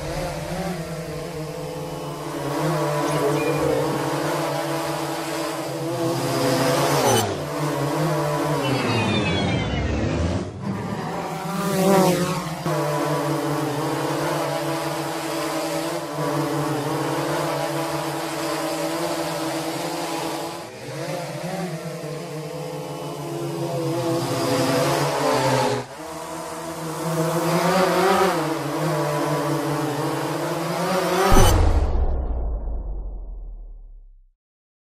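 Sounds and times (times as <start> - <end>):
drone propellers humming: 0.0 - 16.0.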